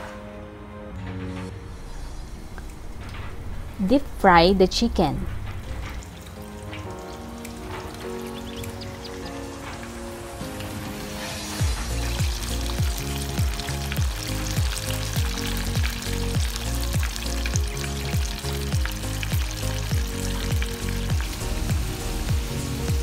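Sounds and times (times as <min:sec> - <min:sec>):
chicken deep-frying in oil: 0:05.7 - 0:23.0
background music with drum beat: 0:07.6 - 0:23.0.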